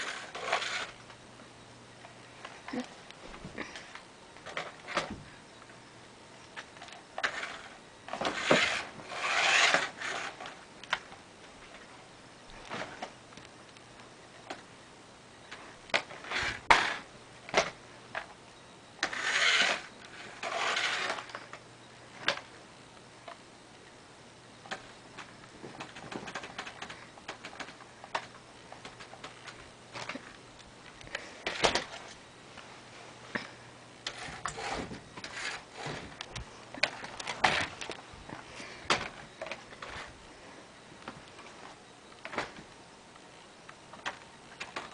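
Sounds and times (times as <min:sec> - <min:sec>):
toy car rubbing on carpet: 0:00.0 - 0:01.0, 0:08.3 - 0:10.4, 0:19.1 - 0:21.3, 0:34.1 - 0:35.9.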